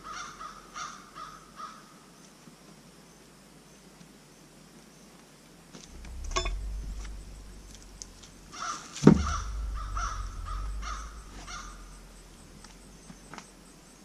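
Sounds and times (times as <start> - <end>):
heavy thump: 5.9 - 12.8
bird calling: 5.9 - 13.6.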